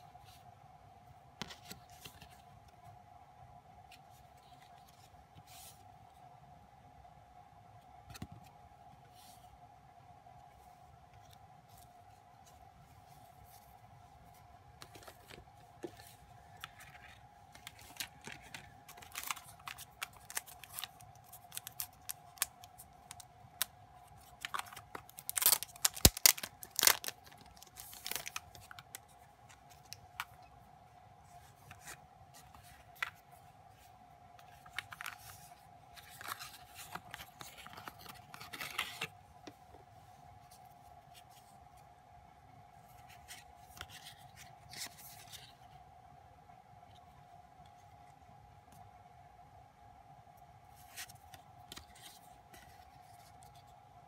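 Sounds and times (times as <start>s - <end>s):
faint steady whine: 0.0s - 54.0s
card and plastic packaging rustling: 14.3s - 30.5s, 31.3s - 39.6s.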